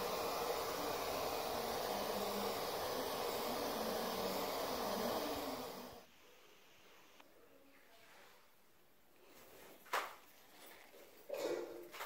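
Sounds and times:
steady hiss: 0:00.0 - 0:07.2.

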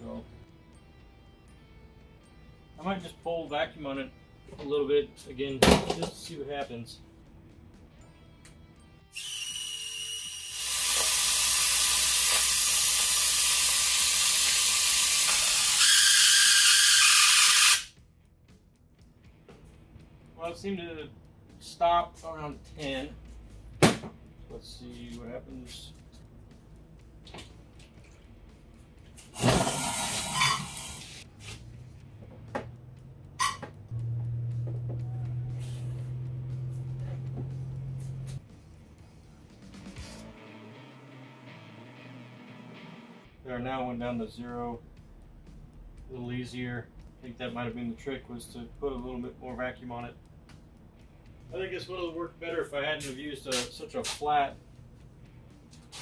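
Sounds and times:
compressed air hissing: 0:09.1 - 0:17.9.

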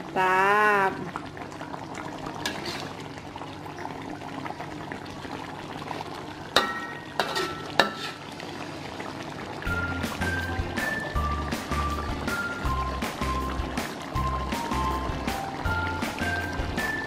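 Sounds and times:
stew bubbling in a pan: 0:00.0 - 0:17.0
spatula stirring: 0:02.4 - 0:03.0, 0:06.6 - 0:08.3.

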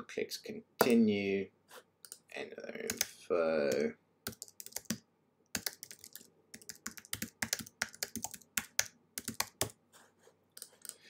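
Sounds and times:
typing on computer keyboard: 0:03.7 - 0:09.8, 0:10.6 - 0:11.0.

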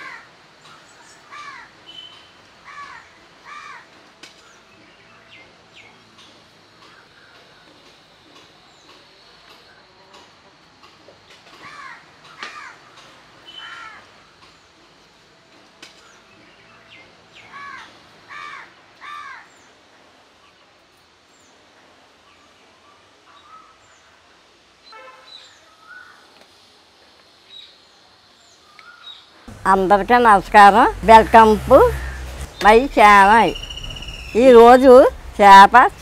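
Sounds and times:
small birds chirping faintly: 0:00.0 - 0:36.0
crows cawing: 0:01.3 - 0:01.7, 0:02.6 - 0:03.9, 0:11.6 - 0:12.9, 0:13.6 - 0:14.1, 0:17.6 - 0:19.5, 0:31.9 - 0:32.5.

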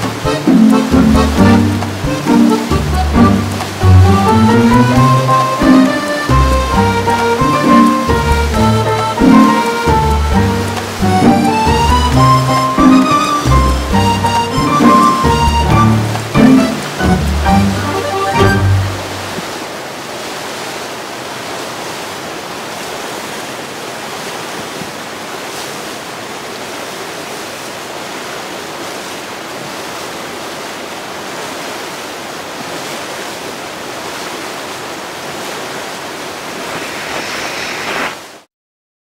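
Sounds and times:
steady rushing noise: 0:00.0 - 0:26.2, 0:34.0 - 0:38.5.

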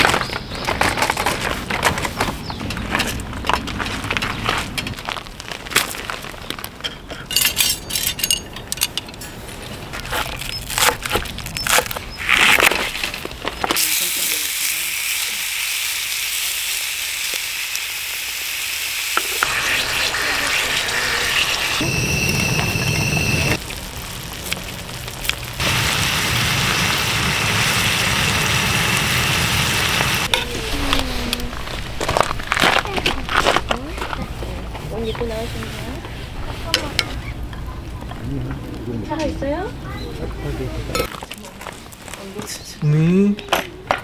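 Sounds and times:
food sizzling in a pan: 0:13.8 - 0:30.3
sharp clicks and crackles: 0:23.5 - 0:25.6.

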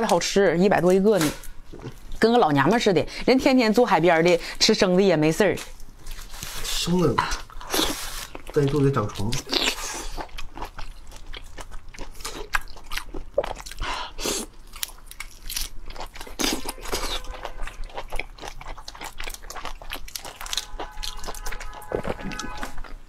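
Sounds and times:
person chewing prawns: 0:07.2 - 0:23.0.

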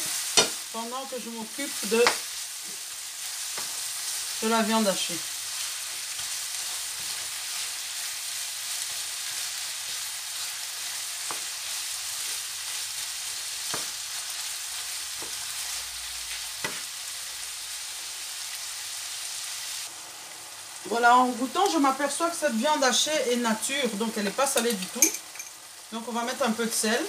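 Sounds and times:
meat sizzling in a frying pan: 0:00.0 - 0:27.0.

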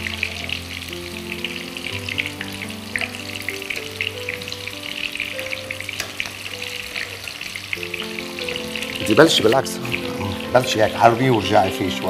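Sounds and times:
oil sizzling and popping: 0:00.0 - 0:12.0
soft background music: 0:00.0 - 0:12.0.

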